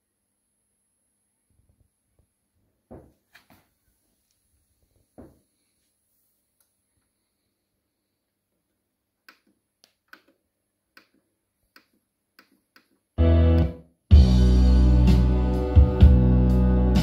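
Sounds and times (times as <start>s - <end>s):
music over hi-fi: 13.2s - 17.0s.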